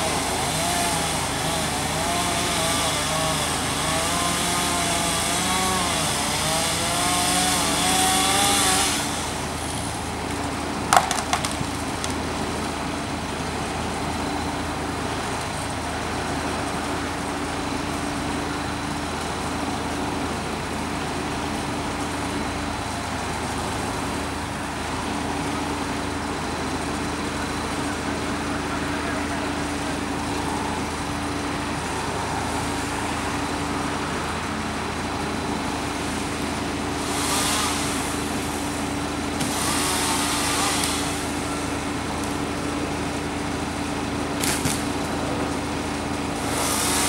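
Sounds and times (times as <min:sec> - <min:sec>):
chainsaw cutting: 0:00.0 - 0:10.0, 0:35.8 - 0:45.0, 0:45.6 - 0:47.0
truck engines idling: 0:00.0 - 0:47.0
sharp crack: 0:10.9 - 0:12.2, 0:44.4 - 0:44.9
small knocks: 0:10.9 - 0:12.2.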